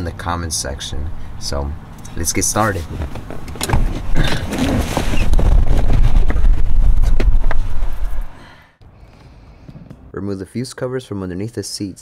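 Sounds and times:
knocks and rustles of body moving: 2.4s - 8.3s.

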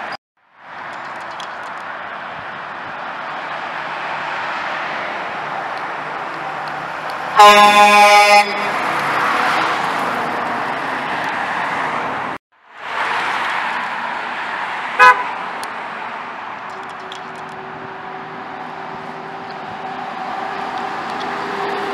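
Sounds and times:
traffic noise: 0.0s - 21.9s
truck driving past: 0.7s - 21.9s
truck air horn blast: 7.4s - 9.1s, 15.0s - 15.4s.

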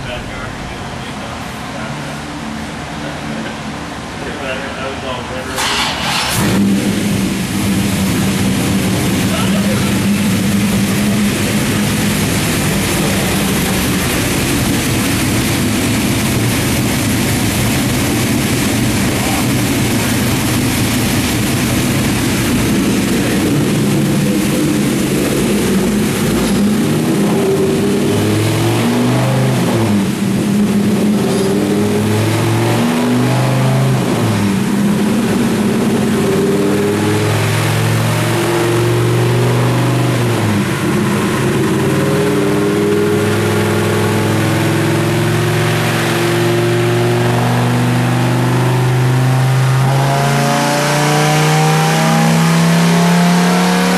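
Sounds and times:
truck engine revving: 0.0s - 53.9s.

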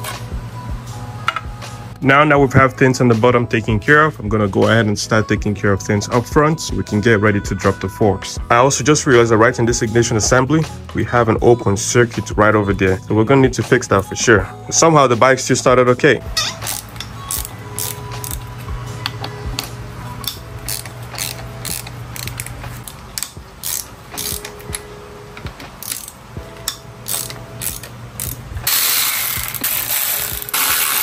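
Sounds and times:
electric ratchet running: 16.6s - 18.5s, 19.6s - 24.8s, 25.8s - 26.2s, 27.0s - 31.0s
ratchet wrench clicking: 16.6s - 18.5s, 19.6s - 24.9s, 25.8s - 31.0s.

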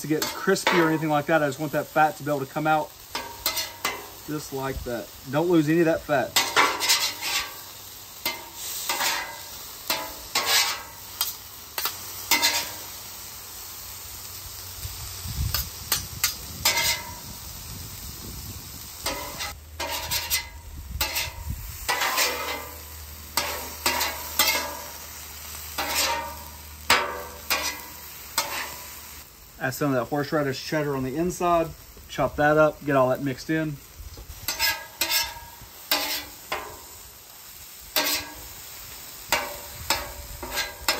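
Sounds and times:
metal spatulas scraping griddle: 0.0s - 1.5s, 3.1s - 4.2s, 6.2s - 13.0s, 15.5s - 17.2s, 19.0s - 29.0s, 34.4s - 37.0s, 38.0s - 38.5s, 39.3s - 40.9s
steady sizzle: 0.0s - 40.9s.

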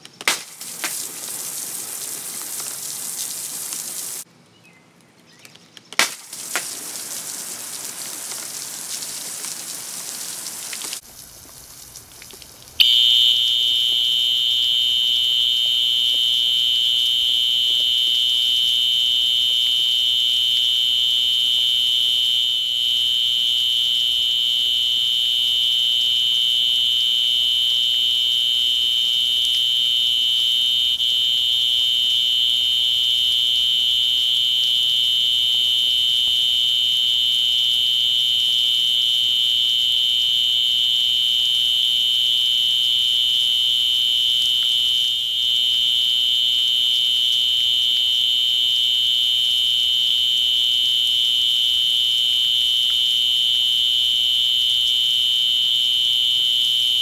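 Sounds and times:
fire alarm horn sounding: 12.8s - 57.0s.

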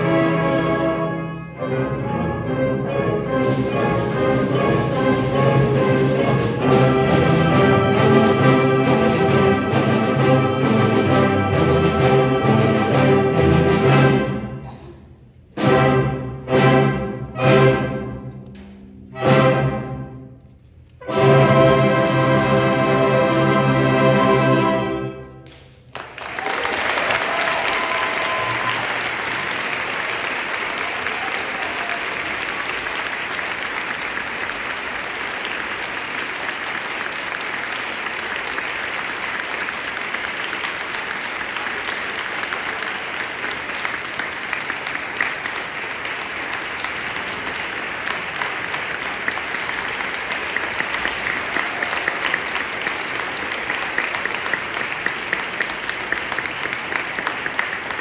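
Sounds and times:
audience applauding: 25.4s - 58.0s.

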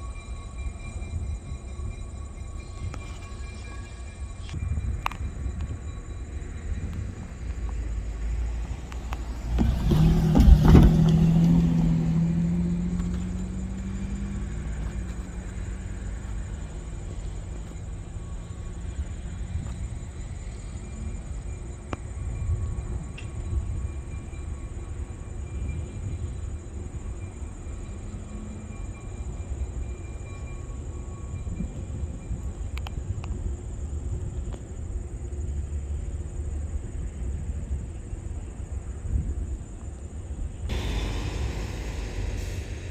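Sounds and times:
diesel locomotive engine rumble: 0.0s - 42.9s
wheels and couplers clanking: 2.4s - 33.3s.

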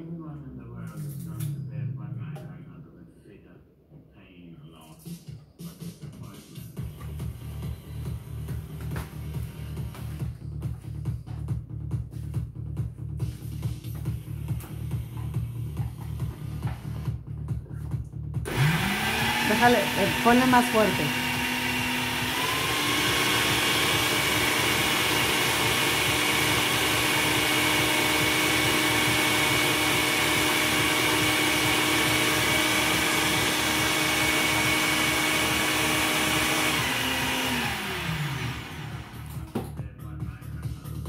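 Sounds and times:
blender motor running: 6.8s - 10.3s, 18.5s - 39.5s.

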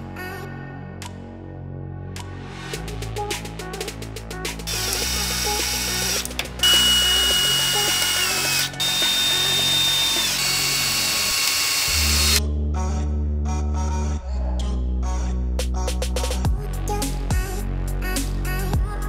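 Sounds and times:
cordless drill driving screws: 4.7s - 12.4s.

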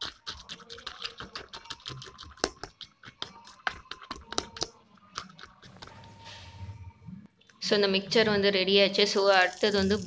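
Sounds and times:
spoon scraping metal bowl: 0.0s - 6.8s.

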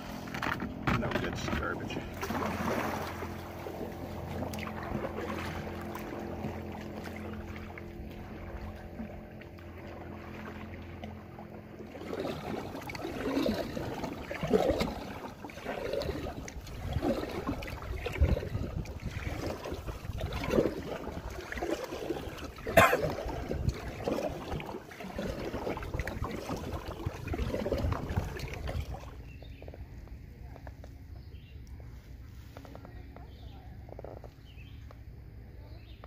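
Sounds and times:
water splashing against kayak: 0.0s - 31.6s
wind rumbling on microphone: 12.4s - 34.7s.

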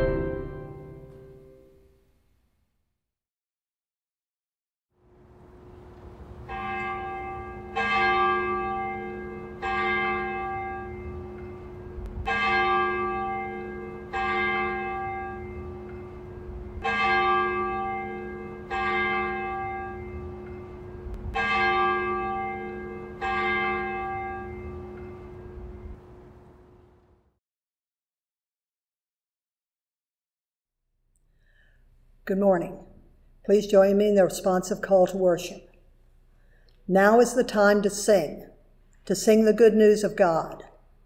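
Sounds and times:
church bell tolling: 0.0s - 1.6s, 5.5s - 26.9s
steady hum: 5.0s - 9.6s, 15.0s - 16.9s, 24.1s - 27.2s.

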